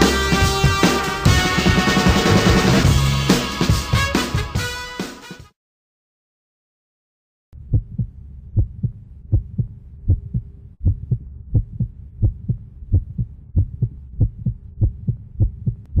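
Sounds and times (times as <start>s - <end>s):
faint low hum: 7.6s - 16.0s
heartbeat thumps: 7.6s - 16.0s.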